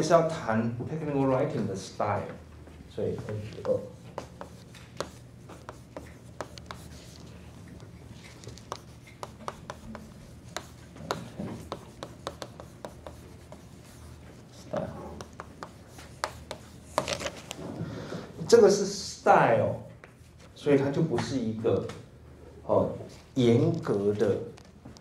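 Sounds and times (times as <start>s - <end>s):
chalk writing on chalkboard: 3.2s - 17.4s.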